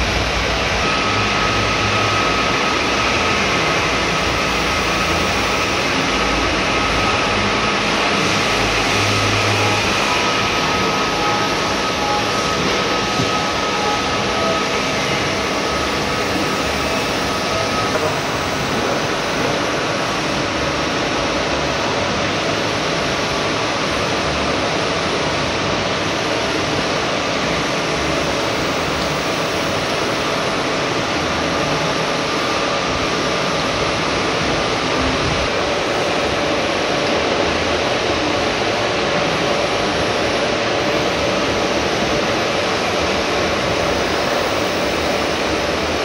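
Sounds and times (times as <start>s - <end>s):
faint steady whine: 0.0s - 46.0s
milling machine cutting steel: 0.2s - 20.7s.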